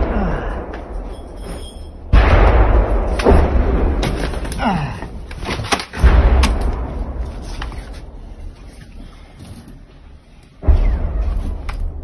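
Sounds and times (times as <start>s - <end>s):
mortar rounds exploding: 2.0s - 4.5s
deep rumble: 10.6s - 12.0s.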